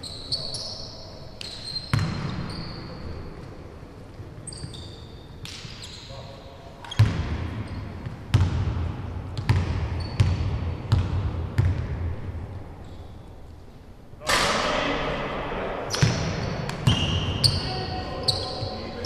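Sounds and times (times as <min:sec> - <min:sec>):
basketball bouncing on hardwood: 0:09.4 - 0:11.9.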